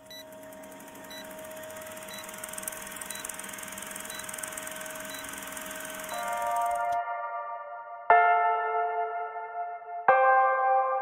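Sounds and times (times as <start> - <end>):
film projector clatter and hiss: 0.0 - 7.0
steady hum: 0.0 - 7.0.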